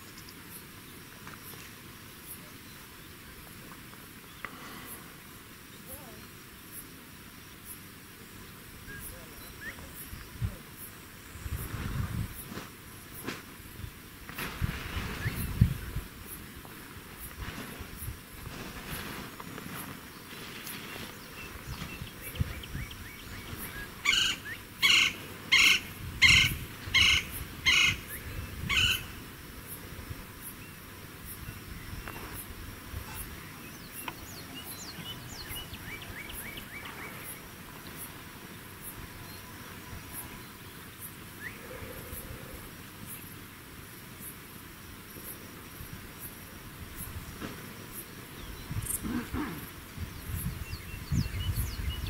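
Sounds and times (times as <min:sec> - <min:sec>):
faint insect ticking: 0:00.0 - 0:11.7.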